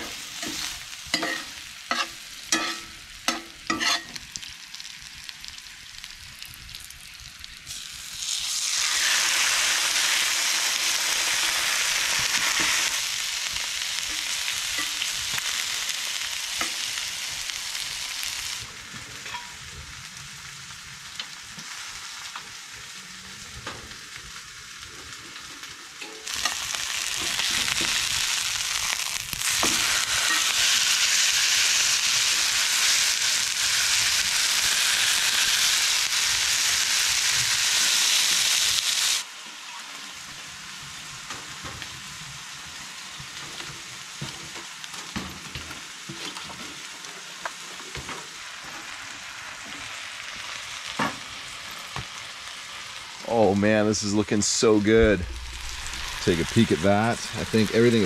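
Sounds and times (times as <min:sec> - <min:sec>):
spatula scraping a pan: 0:00.0 - 0:04.2
steak sizzling: 0:00.0 - 0:58.0.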